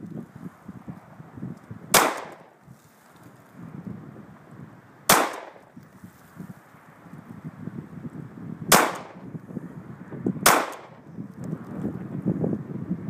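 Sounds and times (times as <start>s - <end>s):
pistol shots: 1.9s - 2.5s, 5.1s - 5.7s, 8.7s - 9.2s, 10.4s - 11.0s.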